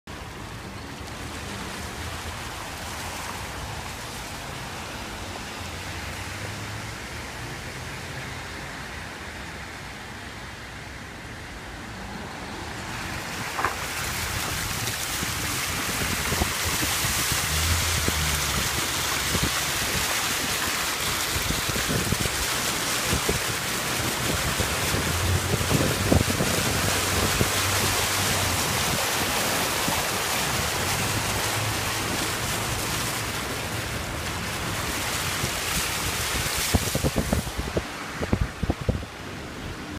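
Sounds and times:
rushing floodwater: 0.1 - 39.9
wind buffeting microphone: 13.2 - 39.9.

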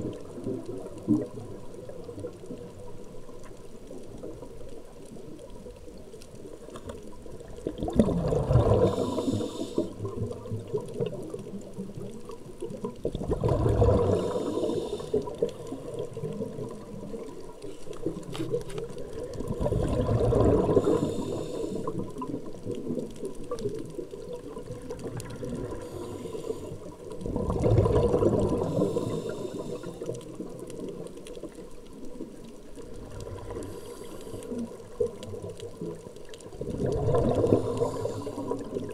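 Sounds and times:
regulator bubbles gurgling: 0.0 - 38.9
underwater water noise: 0.0 - 38.9
regulator hiss: 8.9 - 10.0, 14.1 - 15.4, 20.7 - 22.1, 28.6 - 30.1.

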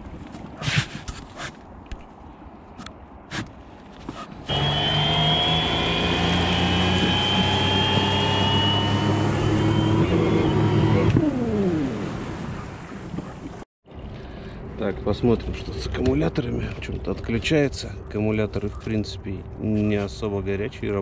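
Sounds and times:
electric motor whine: 4.5 - 11.7.

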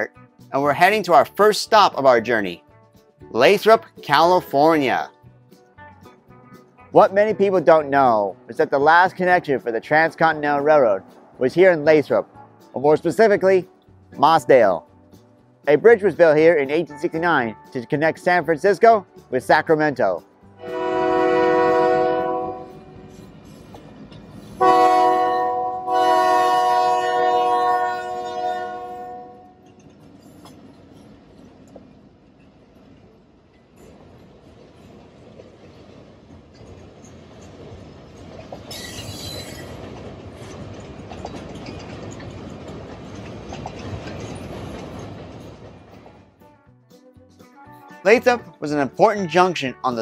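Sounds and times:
train wheels rumbling and clacking: 20.2 - 46.4
locomotive air horn blasts: 20.6 - 23.0, 24.6 - 29.6
locomotives running: 20.9 - 46.4
high wheel squeal: 38.6 - 39.9.

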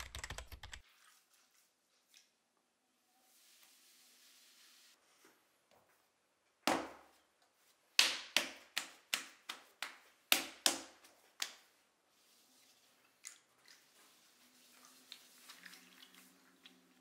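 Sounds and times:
hands slapping clay: 7.9 - 11.8.

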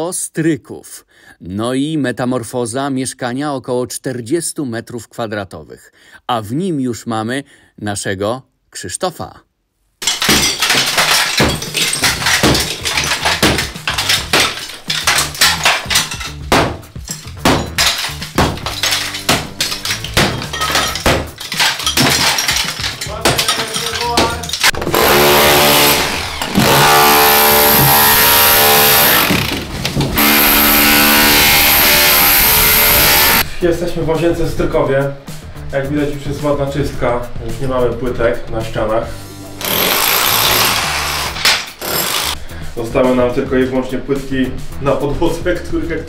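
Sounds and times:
power tool motor running: 24.8 - 29.6, 30.2 - 33.4, 39.6 - 42.4.

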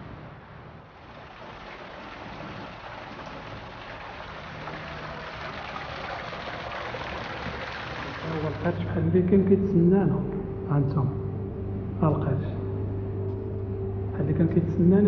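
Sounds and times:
waterfall splashing onto rocks: 1.0 - 8.7.

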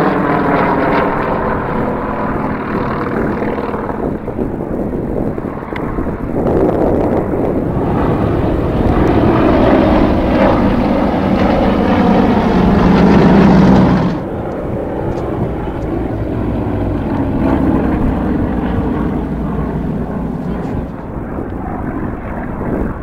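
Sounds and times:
propeller planes droning overhead: 0.0 - 23.0.

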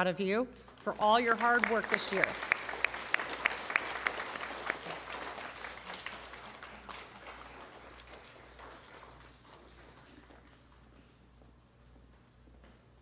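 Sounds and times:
audience applauding: 0.8 - 11.0.

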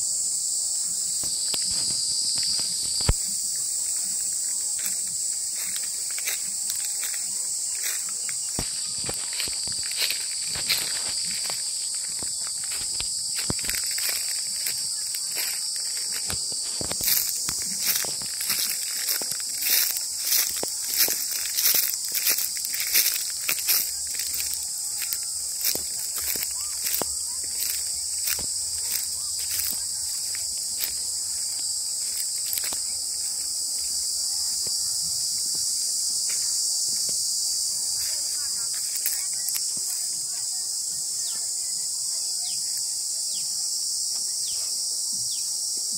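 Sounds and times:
high-pitched insect chorus: 0.0 - 45.9
footsteps on dry leaves: 1.1 - 40.7.

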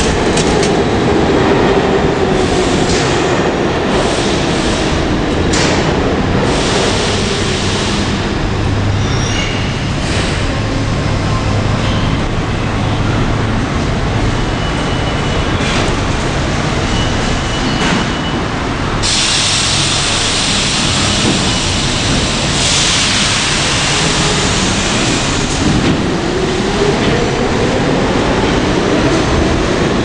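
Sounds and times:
train low rumble: 0.0 - 30.0
loud hiss: 19.0 - 25.4.

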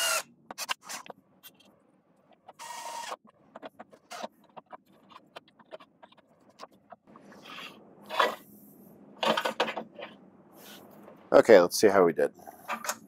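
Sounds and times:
cordless drill driving a screw: 0.0 - 1.1, 2.6 - 3.2.

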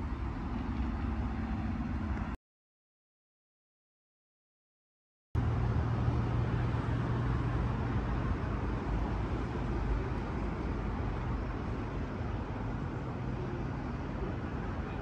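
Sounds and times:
low engine drone: 0.0 - 2.4, 5.4 - 15.0.

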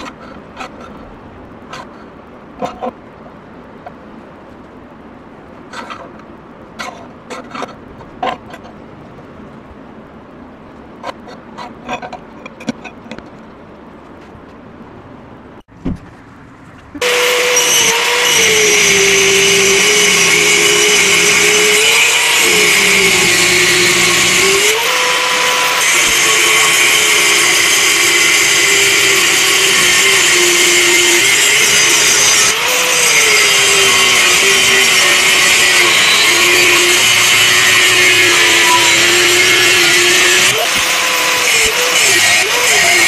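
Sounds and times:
angle grinder cutting steel: 17.0 - 43.0.

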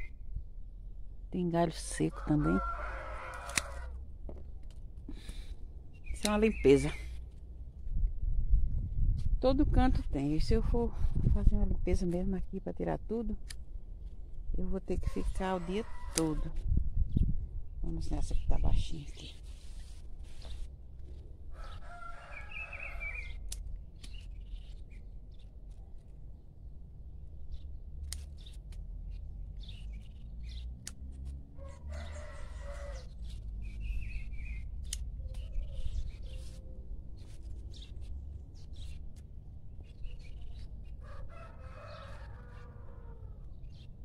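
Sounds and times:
pruning shears snipping stems: 3.3 - 3.9, 13.4 - 13.6, 16.1 - 16.4, 23.4 - 24.4, 28.0 - 28.9, 30.8 - 31.4, 34.7 - 35.6
birds calling: 21.5 - 25.6.

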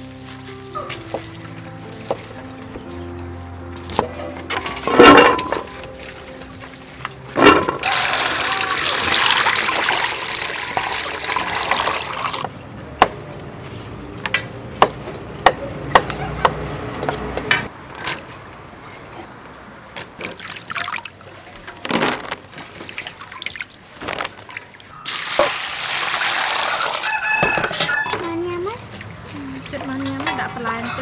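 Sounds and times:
hands sloshing beans in water: 4.6 - 12.5, 20.2 - 27.1
water pouring into steel bowl: 7.4 - 12.5, 24.4 - 27.2
light clicks and splashes: 19.9 - 25.0, 27.8 - 30.9.

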